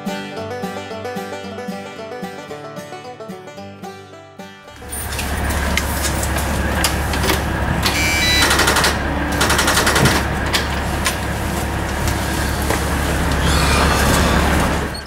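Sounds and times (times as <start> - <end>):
bus engine idling: 4.7 - 15.0
clicks and rapid clattering: 4.8 - 13.4.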